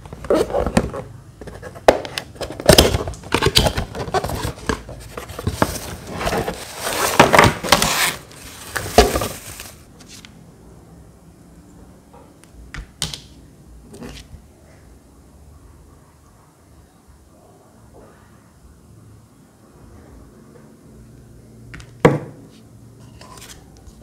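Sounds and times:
cardboard box being opened: 2.4s - 9.9s
wrapping sheet crinkling: 5.4s - 10.2s.

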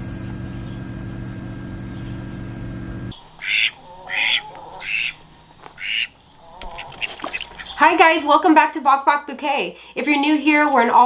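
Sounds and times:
incubator fan humming: 0.0s - 4.4s
poultry squawks: 3.1s - 7.8s.

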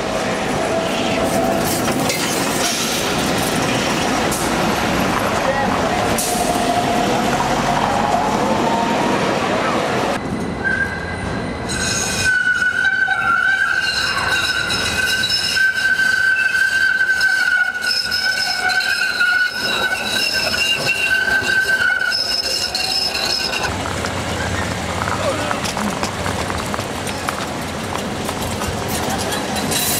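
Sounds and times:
tram wheels squealing on rails: 0.0s - 29.9s.

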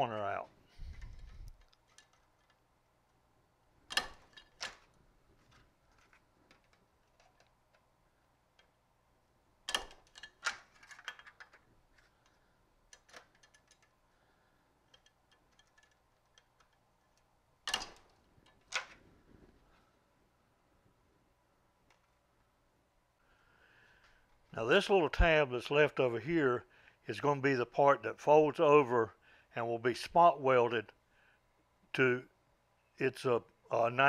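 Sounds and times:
sheet metal punch clicks: 3.9s - 4.8s, 9.7s - 11.2s.

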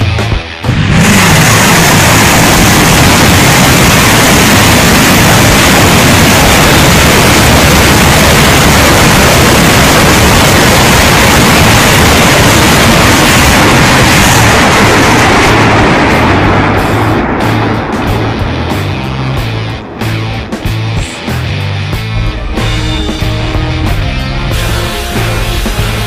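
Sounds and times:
rocket launchers firing: 0.7s - 18.4s.

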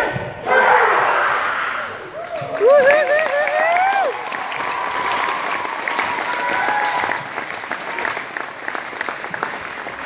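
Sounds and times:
high wavering cheer: 0.6s - 7.3s
audience applauding: 2.2s - 10.0s.

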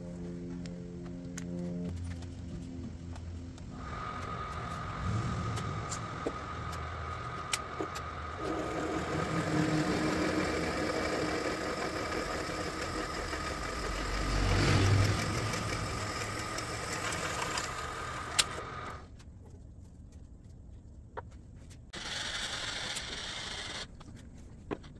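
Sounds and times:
milling machine motor whining: 3.8s - 19.0s.

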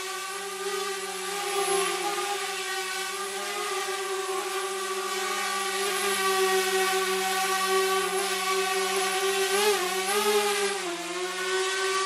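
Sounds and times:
drone motors buzzing: 0.0s - 12.0s.

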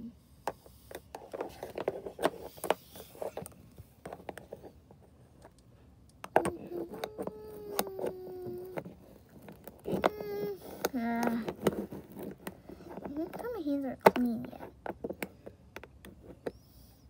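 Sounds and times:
plastic clicks and knocks: 5.4s - 16.6s.

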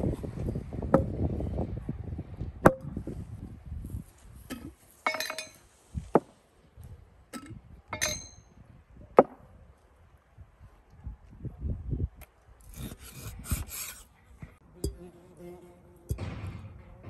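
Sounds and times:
glass jars clinking: 4.6s - 5.6s, 7.4s - 8.5s.

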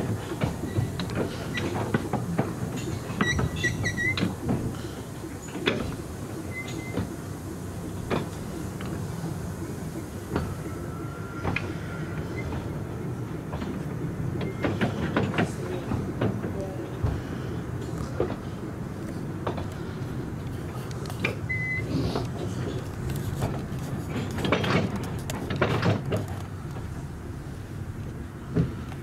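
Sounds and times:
train rumbling on track: 0.0s - 29.0s
high squeals of wheels: 2.8s - 4.3s, 6.5s - 7.0s, 10.4s - 12.7s.

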